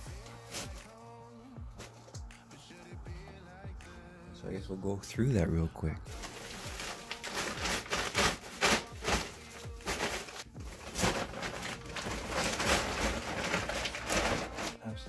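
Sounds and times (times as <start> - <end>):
plastic bags rustling and crinkling: 0.1 - 1.0, 6.1 - 14.9.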